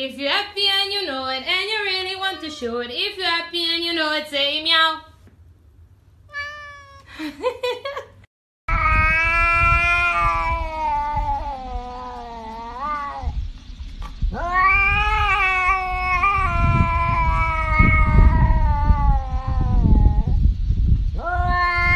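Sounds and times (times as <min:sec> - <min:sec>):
cat yowling: 0:06.3 - 0:07.1, 0:08.7 - 0:13.4, 0:14.3 - 0:20.4, 0:21.2 - 0:21.9
low rumbling noise: 0:08.7 - 0:21.9.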